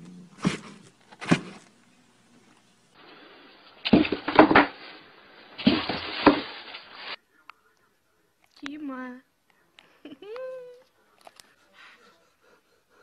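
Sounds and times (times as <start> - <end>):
cat thumping in cardboard box: 5.6 - 6.6.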